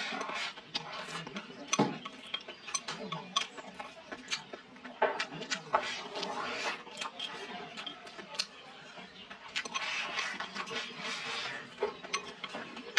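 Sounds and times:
chopsticks scraping ceramic bowl: 0.0s - 3.6s, 5.1s - 8.2s, 9.5s - 12.9s
slurping and chewing: 0.0s - 12.9s.

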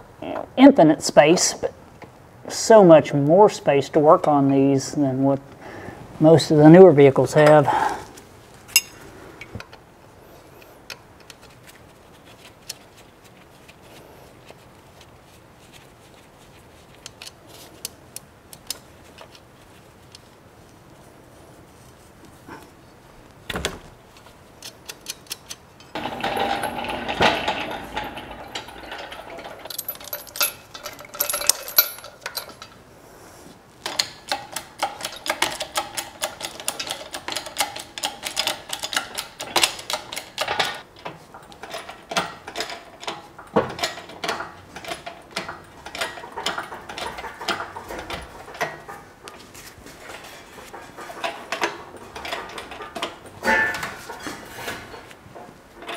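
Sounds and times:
tools and metal parts rattling: 24.6s - 32.8s, 33.8s - 55.9s.

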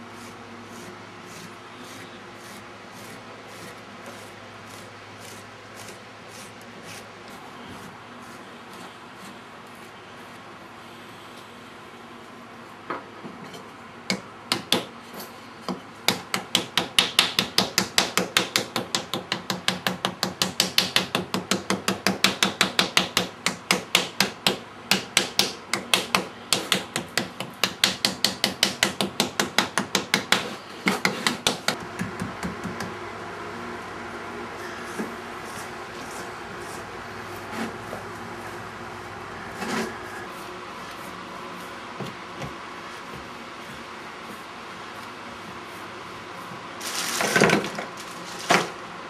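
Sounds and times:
rapid hammering: 14.1s - 14.9s, 16.0s - 33.0s.

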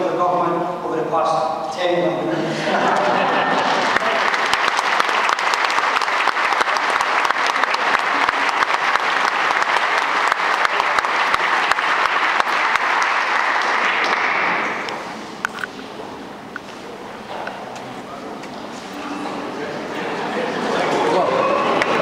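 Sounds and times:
audience applauding: 2.7s - 15.0s, 20.6s - 22.0s.

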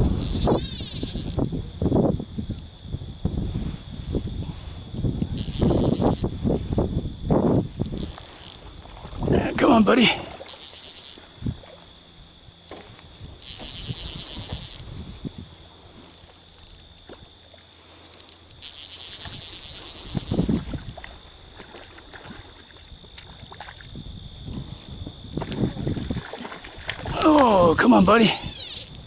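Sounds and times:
fly reel click drag buzzing: 0.0s - 1.5s, 5.2s - 6.3s, 7.8s - 8.6s, 10.3s - 11.3s, 13.4s - 14.9s, 16.0s - 17.4s, 18.0s - 20.6s, 28.0s - 29.0s.

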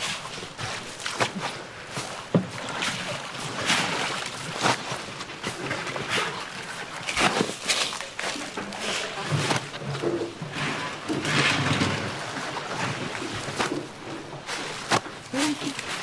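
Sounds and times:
cabbage rustling and crunching: 13.4s - 16.0s.

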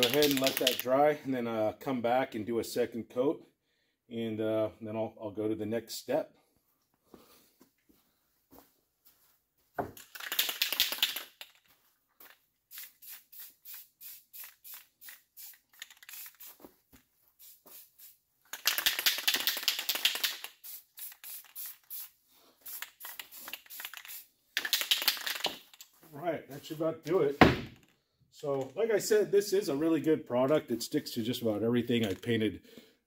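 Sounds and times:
spray paint can hissing: 10.0s - 11.5s, 12.7s - 16.7s, 17.4s - 25.8s.

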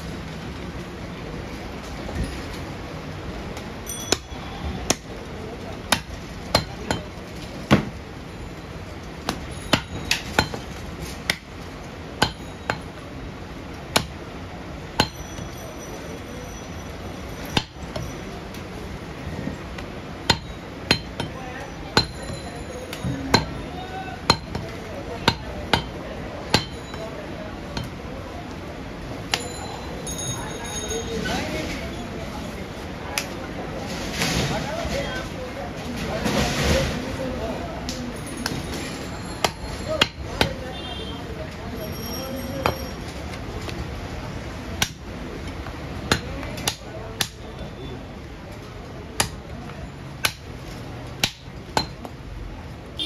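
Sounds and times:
cleaver chopping on wooden block: 4.1s - 5.1s, 5.9s - 7.1s, 9.3s - 11.5s, 12.2s - 12.9s, 13.9s - 14.2s, 15.0s - 15.2s, 20.3s - 21.4s, 22.0s - 22.3s, 23.3s - 23.6s, 24.2s - 26.8s, 39.4s - 40.6s, 44.8s - 45.0s, 46.0s - 47.4s, 49.2s - 49.6s, 50.2s - 52.1s.

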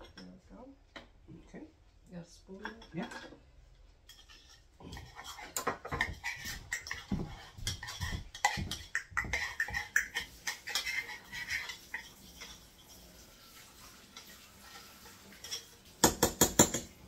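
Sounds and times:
spoon scraping and knocking container: 4.1s - 13.1s.

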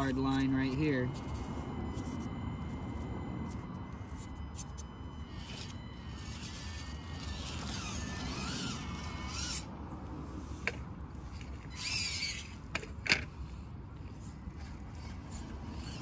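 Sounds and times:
small electric motor whining: 0.0s - 16.0s
toy car knocking on rocks: 11.7s - 13.3s.

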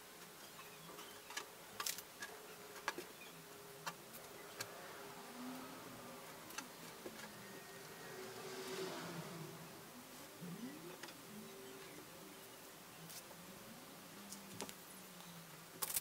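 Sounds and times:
thin wavering buzz: 0.0s - 16.0s.

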